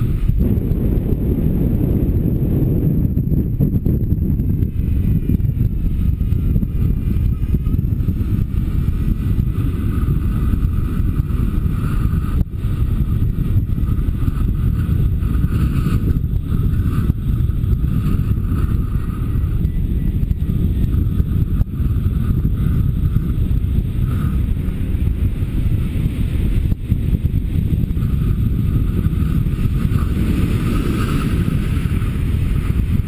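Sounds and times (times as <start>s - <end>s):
wind buffeting microphone: 0.0s - 33.0s
faint wavering whistle: 18.8s - 20.9s.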